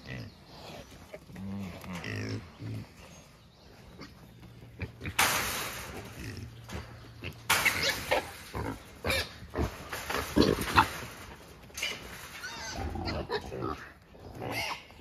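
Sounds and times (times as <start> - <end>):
hogs squealing and grunting: 11.9 - 15.0.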